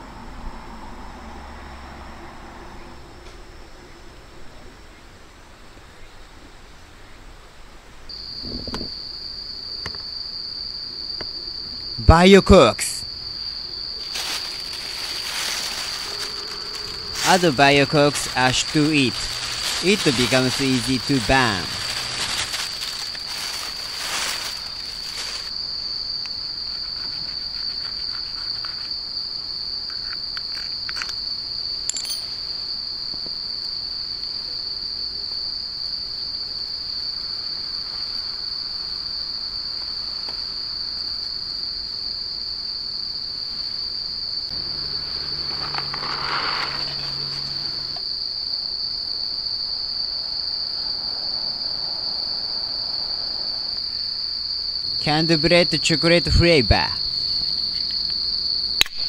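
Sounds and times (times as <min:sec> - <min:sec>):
night insects droning: 0:00.0 - 0:59.0
paper rustling and clicks: 0:14.0 - 0:25.5, 0:45.4 - 0:47.5.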